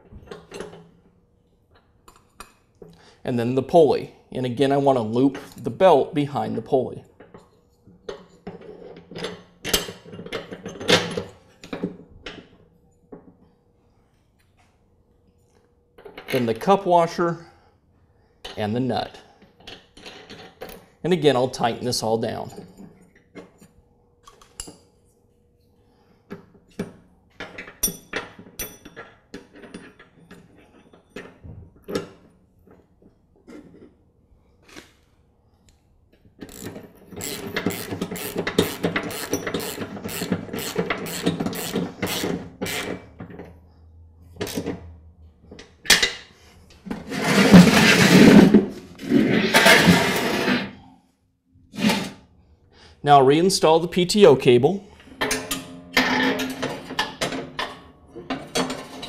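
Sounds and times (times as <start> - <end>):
socket wrench ratchet clicking: 36.4 - 43.0
metal deck scraping on floor: 46.8 - 50.9, 51.7 - 52.2.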